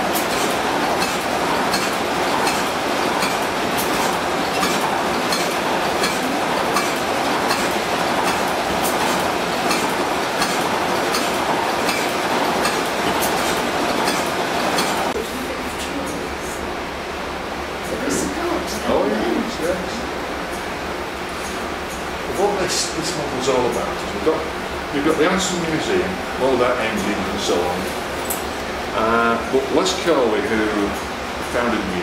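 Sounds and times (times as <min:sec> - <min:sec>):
mechanical clatter: 0:00.0 - 0:15.2.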